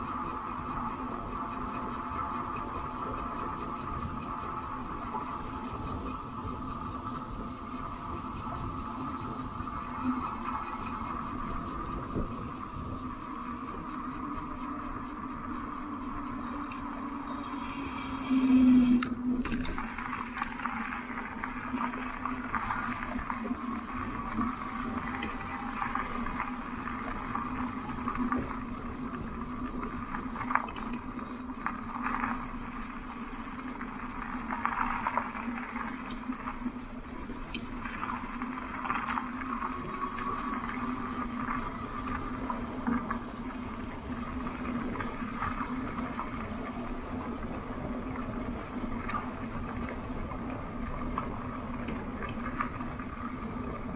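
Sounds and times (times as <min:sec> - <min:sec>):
steady low hum: 0:00.0 - 0:53.9
rushing noise: 0:16.3 - 0:20.2.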